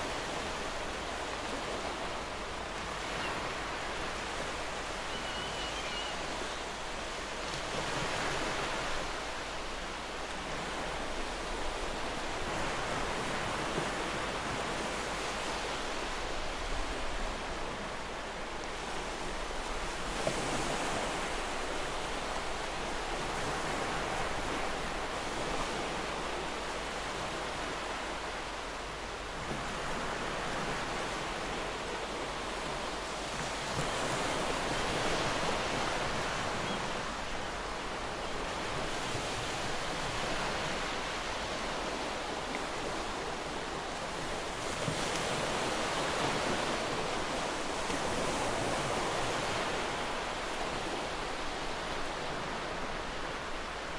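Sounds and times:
waves on rocky shore: 0.0 - 53.9.

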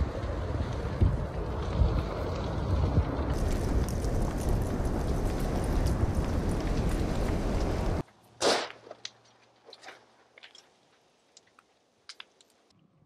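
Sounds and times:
flames roaring: 0.0 - 8.0
wind noise: 0.0 - 8.0
burning house crackling and popping: 0.0 - 12.7.

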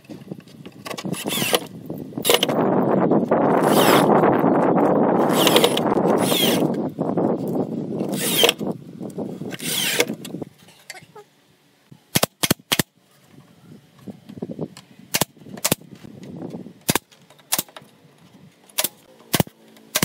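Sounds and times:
cordless drill driving screws: 1.1 - 2.6, 3.6 - 4.1, 5.2 - 6.8, 8.1 - 8.6, 9.5 - 10.2
nail gun shots: 12.1 - 12.9, 15.1 - 15.8, 16.8 - 17.8, 18.8 - 20.0.

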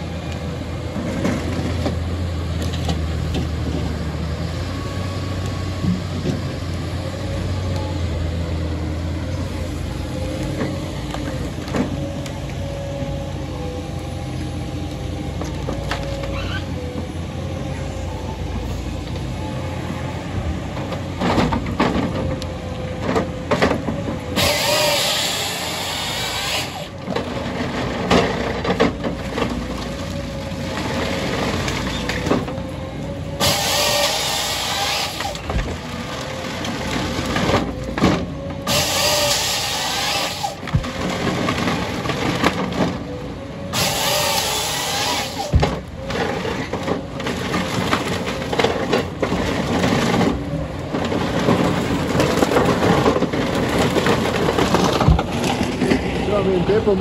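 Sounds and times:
diesel engine and hydraulics running: 0.0 - 57.0
chain saw cutting through log: 24.4 - 27.0, 33.4 - 35.5, 38.7 - 40.7, 43.7 - 45.6.

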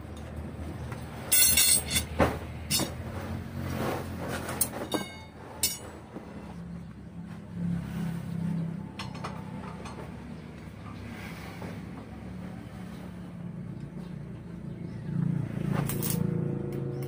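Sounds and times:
steel rods clanking: 1.1 - 3.4, 4.2 - 6.1.

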